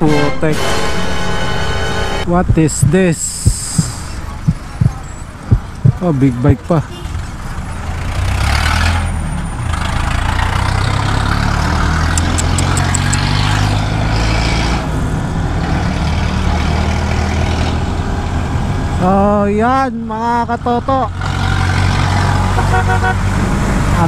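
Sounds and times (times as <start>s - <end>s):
wind rushing over microphone: 2.3s - 6.6s
motorcycle engine running: 2.5s - 6.1s
faint high ticks: 12.1s - 13.3s.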